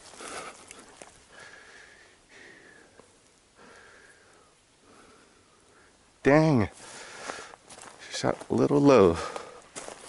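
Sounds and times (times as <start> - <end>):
brush rustling: 0.0 - 1.9
person breathing: 0.0 - 6.0, 6.8 - 7.6, 9.2 - 9.7.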